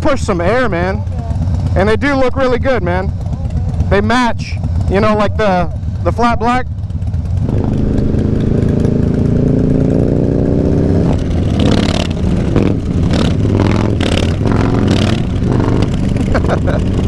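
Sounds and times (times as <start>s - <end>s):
motorcycle engine accelerating: 0.0s - 17.0s
wind buffeting microphone: 7.4s - 17.0s.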